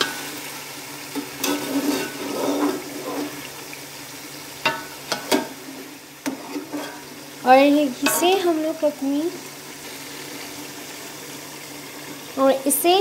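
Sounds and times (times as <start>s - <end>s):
meat sizzling in a pot: 0.0s - 13.0s
metal spatula scraping a pot: 1.1s - 3.6s, 4.7s - 7.3s, 7.9s - 8.5s.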